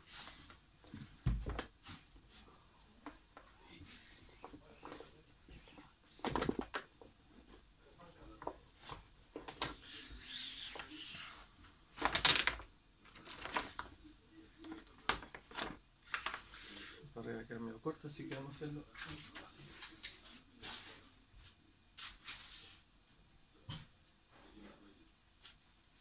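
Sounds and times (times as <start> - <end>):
palms rubbing over film: 3.1 - 6.7.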